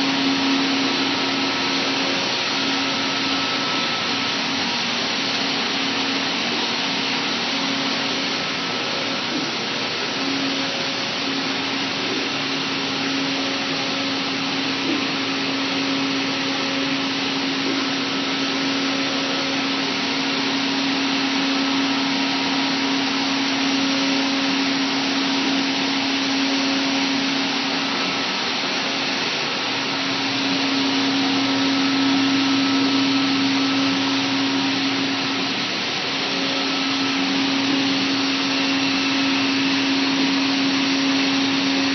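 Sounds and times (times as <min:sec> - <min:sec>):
cnc router running: 0:00.0 - 0:41.9.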